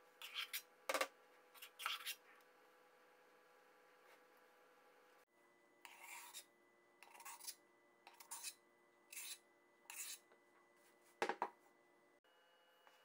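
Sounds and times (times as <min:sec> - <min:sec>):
metal spoon scraping bowl: 0:00.2 - 0:00.6, 0:01.6 - 0:02.2, 0:05.9 - 0:10.2.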